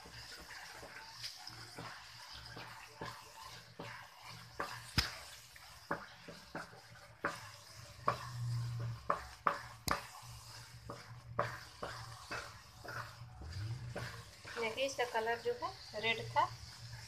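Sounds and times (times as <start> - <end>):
spatula scraping thick mixture: 0.0 - 17.0
spatula knocking against pan: 5.9 - 10.2.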